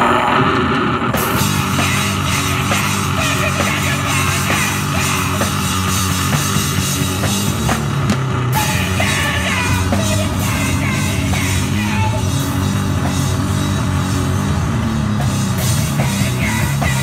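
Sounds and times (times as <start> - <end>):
distorted electric guitar: 0.0 - 17.0
drum kit beat: 1.1 - 17.0.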